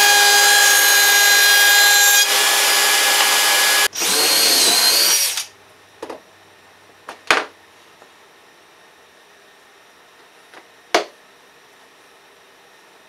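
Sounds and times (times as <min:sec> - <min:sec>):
cordless drill boring into wood: 0:00.0 - 0:05.5.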